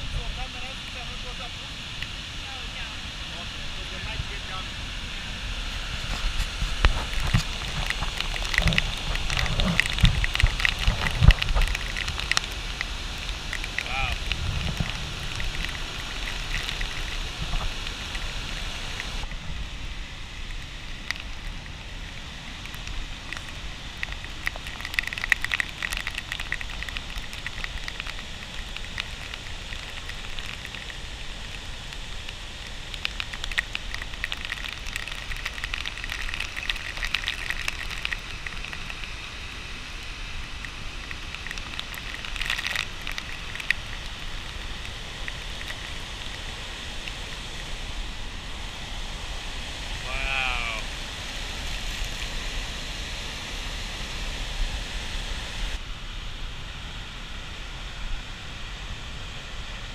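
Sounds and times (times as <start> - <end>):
waterfall rushing: 0.0 - 54.3
droplets pattering on microphone: 5.6 - 48.7, 49.9 - 52.7.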